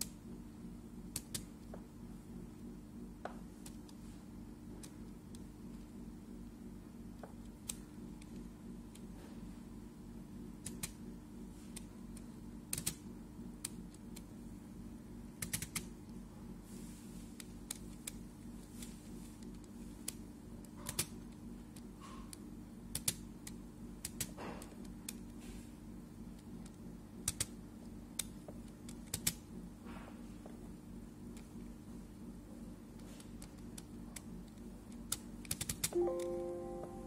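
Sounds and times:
steady low hum: 0.0s - 37.0s
laptop controls clicking: 10.6s - 11.0s, 12.7s - 13.0s, 15.4s - 15.9s, 22.9s - 24.4s, 26.6s - 27.6s, 28.2s - 29.4s, 33.2s - 37.0s.

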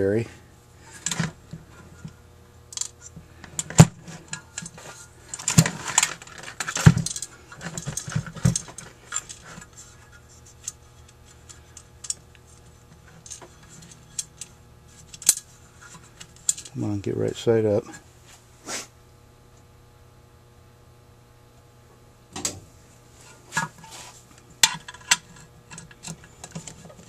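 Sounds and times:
small metal parts rattling: 2.7s - 16.8s, 24.6s - 27.0s
metal clinking and knocking: 3.6s - 9.7s.

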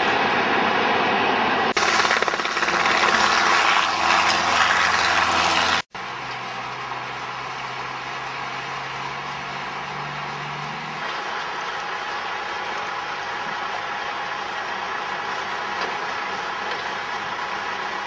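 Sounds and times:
helicopter rotor chopping: 1.7s - 18.0s
truck engine running: 1.7s - 18.0s.

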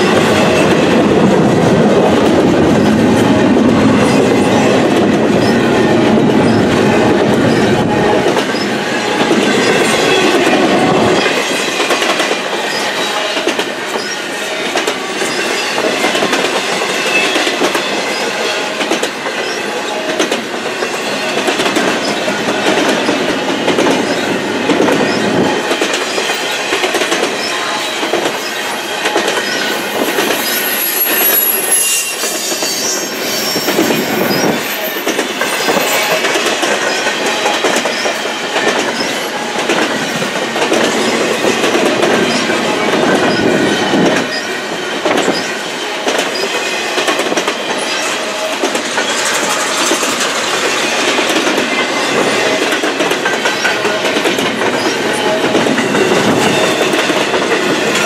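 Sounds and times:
train wheels clattering over joints: 0.0s - 58.0s
wheel squeal: 6.4s - 8.7s, 28.4s - 37.1s.

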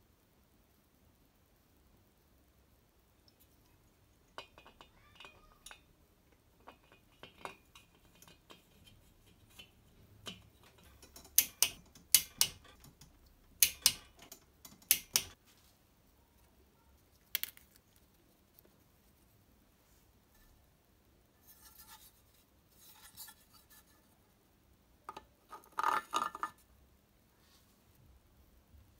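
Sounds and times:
torque wrench clicking: 11.0s - 15.4s.

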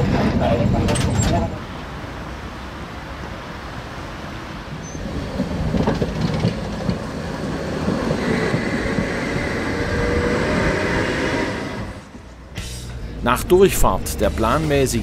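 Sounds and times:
tram wheels clattering over rails: 0.0s - 1.7s, 4.7s - 15.0s
tram whine: 0.0s - 15.0s.

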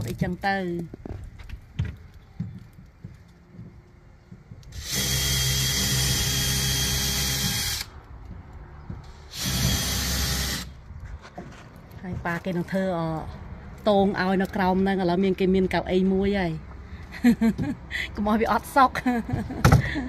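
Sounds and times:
cordless drill whining: 4.7s - 7.9s, 9.3s - 10.8s.

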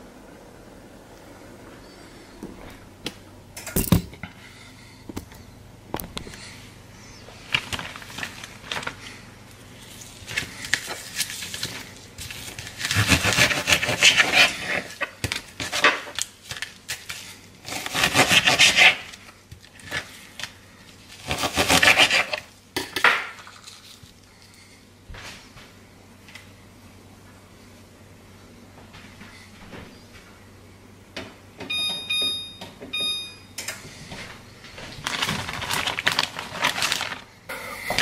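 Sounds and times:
fish fillets rubbing and rustling: 7.3s - 22.4s, 34.8s - 37.4s.

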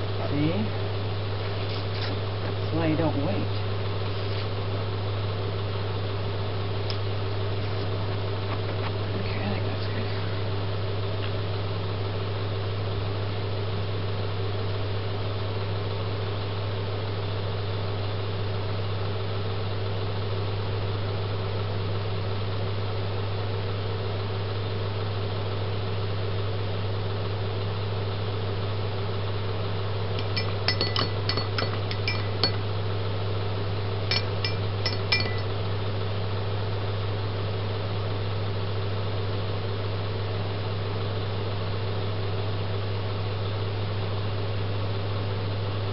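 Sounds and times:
low electrical hum: 0.0s - 45.9s
sharp high clinks: 30.2s - 32.6s, 34.1s - 35.5s.

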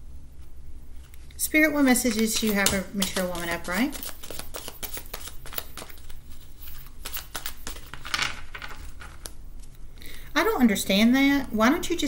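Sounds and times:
cards being shuffled: 1.0s - 9.8s.

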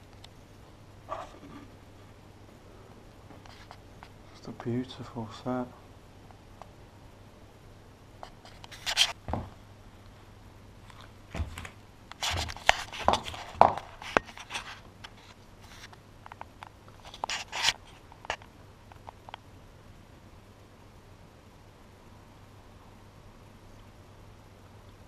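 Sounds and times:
camera handling scrapes and rustles: 8.2s - 9.2s, 12.2s - 16.0s, 17.0s - 18.4s.

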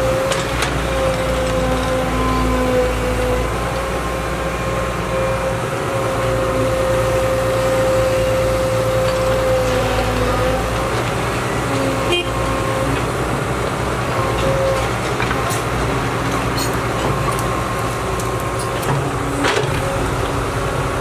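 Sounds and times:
excavator diesel engine running: 0.0s - 21.0s.

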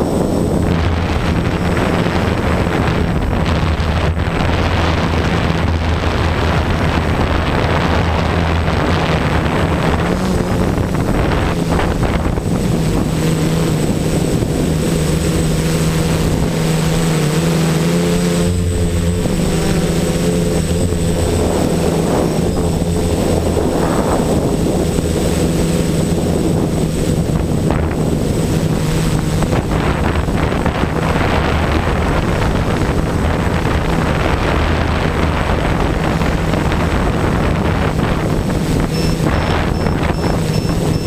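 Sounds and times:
quadcopter motors droning buzz: 0.0s - 41.0s.

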